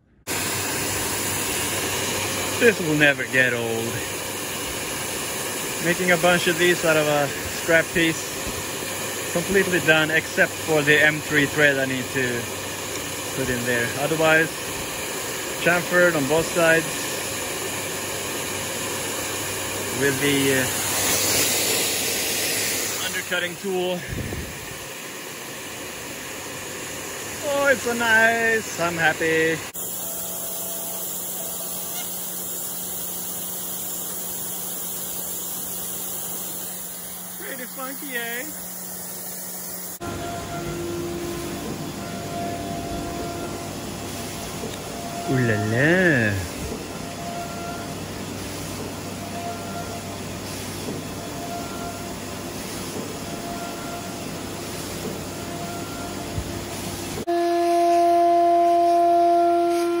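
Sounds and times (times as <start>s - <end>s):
noisy machine hum: 0.0s - 60.0s
cnc router running: 25.8s - 35.1s, 36.0s - 60.0s
faint pulsing tone: 40.0s - 48.0s.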